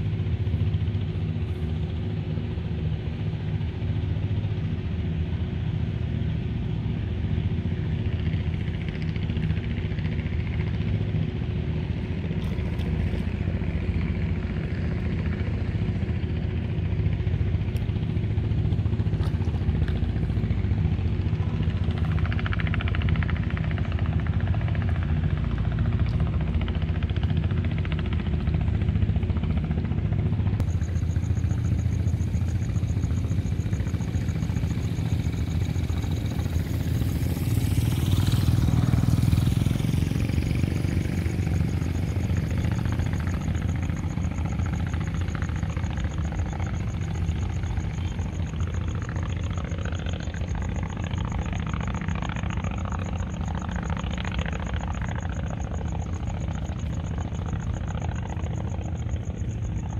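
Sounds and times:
engine humming steadily: 0:00.0 - 0:59.9.

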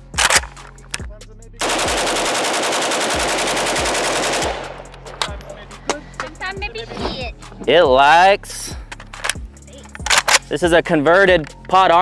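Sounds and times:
rifle loading clicks: 0:00.1 - 0:01.1, 0:04.8 - 0:05.5, 0:08.9 - 0:10.5
rifle firing full-auto burst: 0:01.6 - 0:04.9.

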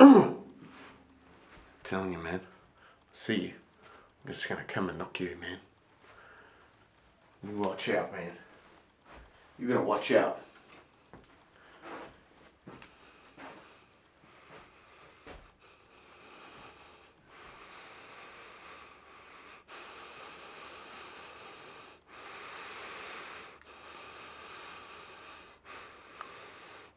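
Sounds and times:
man breathing heavily: 0:03.7 - 0:04.2, 0:06.0 - 0:07.0, 0:10.4 - 0:26.9
sniffs: 0:11.6 - 0:26.9.

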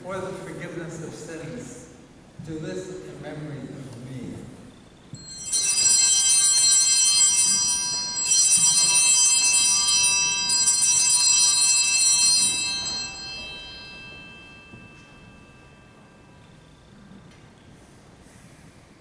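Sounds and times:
bells chiming: 0:05.1 - 0:17.1.

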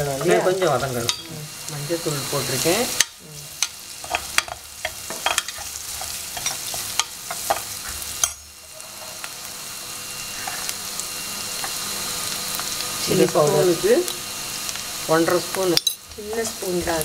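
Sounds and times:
onions sizzling in oil: 0:00.0 - 0:17.0
spoon scraping and clinking pan: 0:04.0 - 0:08.4.

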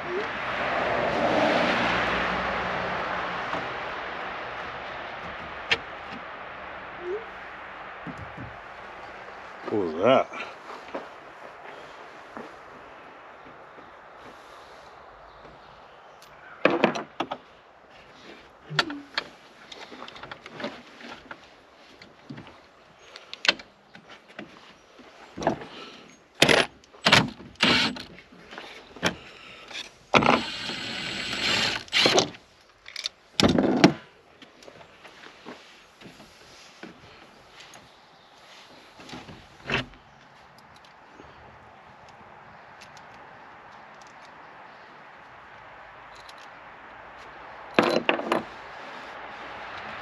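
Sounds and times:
vehicle passing by: 0:00.0 - 0:16.2, 0:48.4 - 0:50.0.

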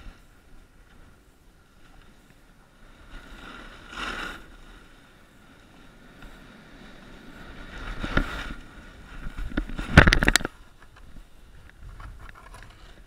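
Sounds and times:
snowboard scraping over snow: 0:00.0 - 0:10.1.

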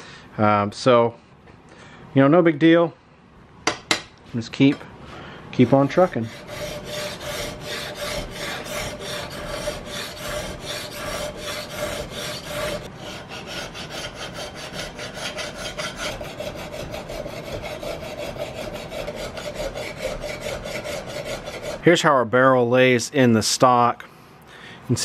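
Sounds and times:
file scraping steel: 0:05.5 - 0:22.0.

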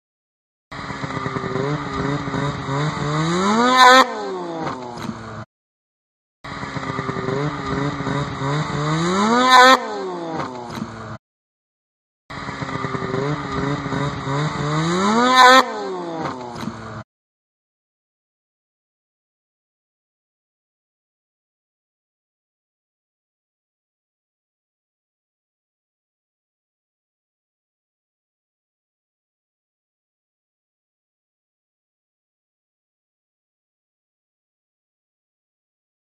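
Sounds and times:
snowmobile engine accelerating: 0:00.7 - 0:05.5, 0:06.5 - 0:11.2, 0:12.3 - 0:17.0.

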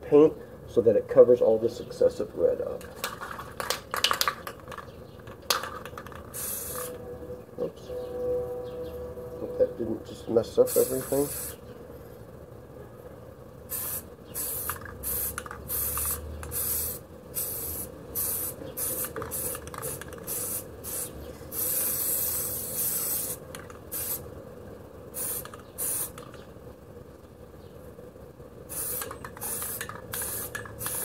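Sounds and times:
spray can hissing bursts: 0:05.6 - 0:07.0, 0:10.7 - 0:11.6, 0:13.7 - 0:24.3, 0:25.1 - 0:26.4, 0:28.7 - 0:31.0.

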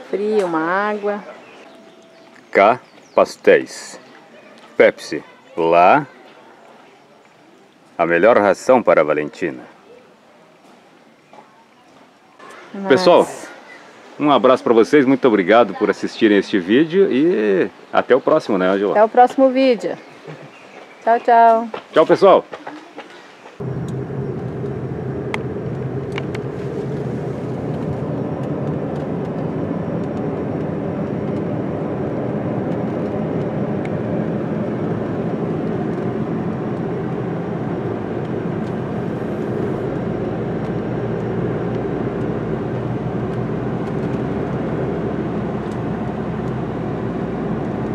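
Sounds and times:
car engine and road noise: 0:23.6 - 0:47.9.

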